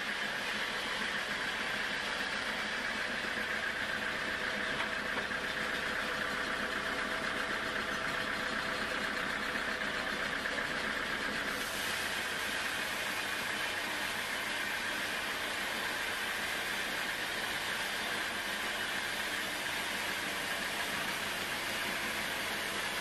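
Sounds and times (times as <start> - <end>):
band saw running: 0.0 - 23.0
saw blade rasping through wood: 11.5 - 23.0.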